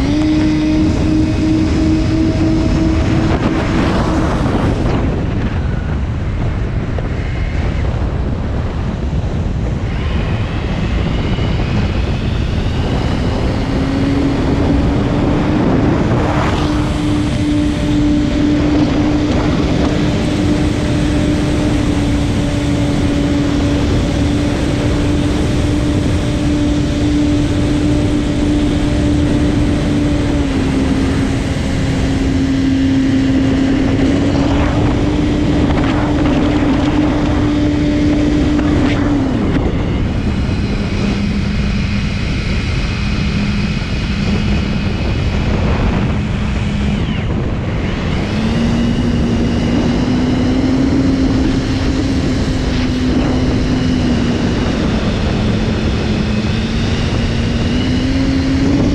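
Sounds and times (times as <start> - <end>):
model plane motor buzzing: 0.0 - 58.9
wind rush: 0.0 - 58.9.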